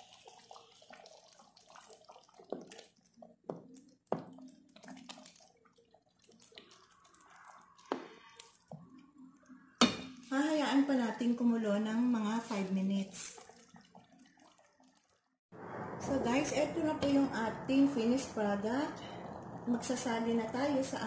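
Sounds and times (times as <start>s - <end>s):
pot bubbling and sloshing: 0.0s - 15.4s.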